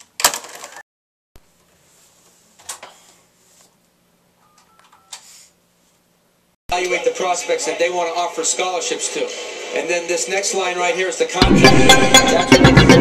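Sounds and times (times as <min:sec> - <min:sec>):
electronic phone tones: 0:04.4 - 0:05.2.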